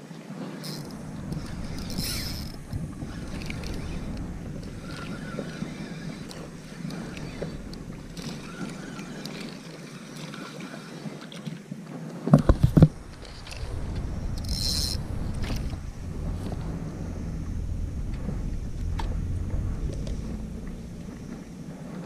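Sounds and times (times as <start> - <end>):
water lapping and sloshing: 0.0 - 22.0
wind on microphone: 0.2 - 10.1, 11.8 - 22.0.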